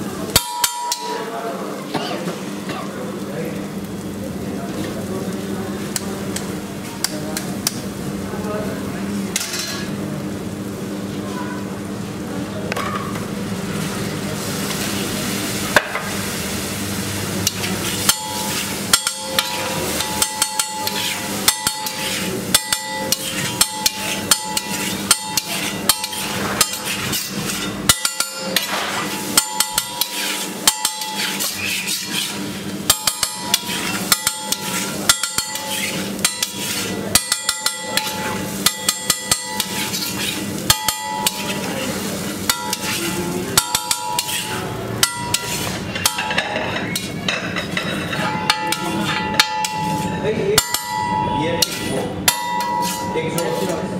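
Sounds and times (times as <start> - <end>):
water sizzling on hot griddle: 0.0 - 53.9
metal spatula clanging on griddle: 0.3 - 2.2, 9.3 - 10.0, 17.4 - 53.9.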